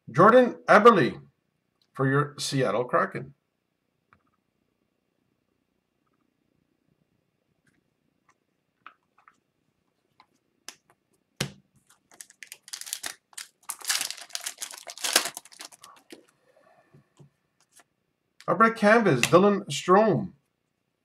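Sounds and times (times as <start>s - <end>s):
cards rustling: 11.8s - 16.3s, 17.6s - 17.9s
foil pack crinkling and tearing: 11.9s - 16.3s.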